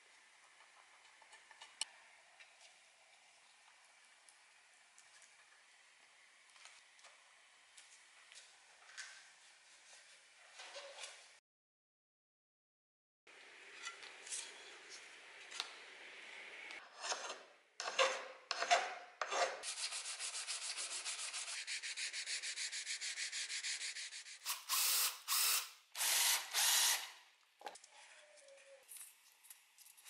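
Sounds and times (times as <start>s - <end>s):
wood rubbing on sandpaper: 19.6s - 24.4s.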